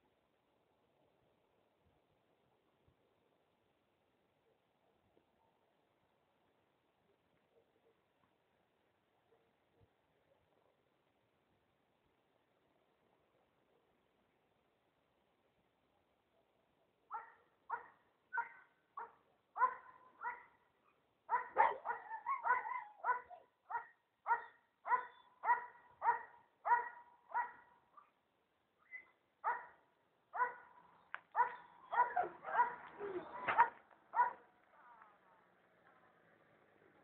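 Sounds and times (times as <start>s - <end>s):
dog barking: 17.1s - 28.2s, 29.4s - 34.5s.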